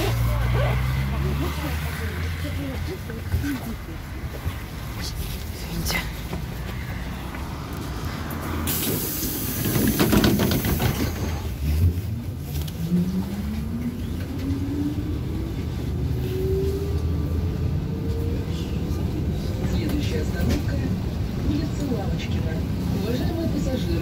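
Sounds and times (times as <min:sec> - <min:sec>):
compressed air hissing: 0:08.6 - 0:11.1.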